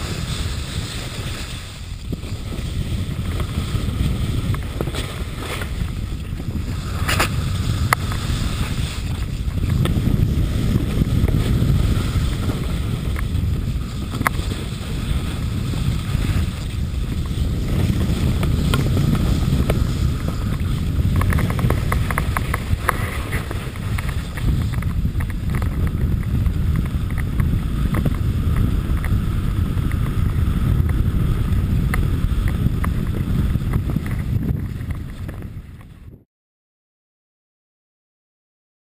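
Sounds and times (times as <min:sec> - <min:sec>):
skis scraping over snow: 0:00.0 - 0:36.2
wind buffeting microphone: 0:00.0 - 0:36.2.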